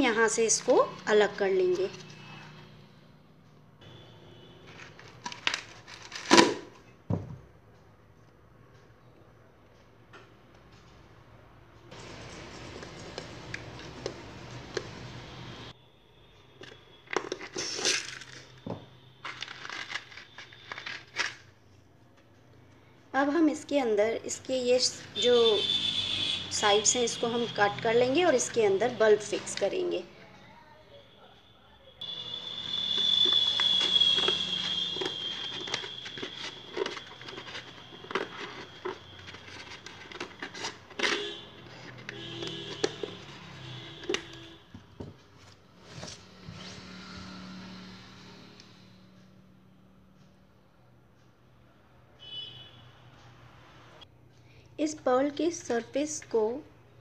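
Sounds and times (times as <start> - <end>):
paper shell crackling: 4.7 - 6.7, 17.0 - 21.5, 32.0 - 44.3.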